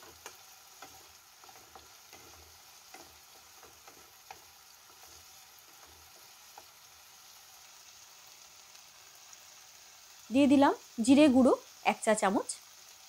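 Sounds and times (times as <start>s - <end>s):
spatula scraping and tapping pan: 0.0s - 7.0s
food frying in oil: 0.0s - 13.0s.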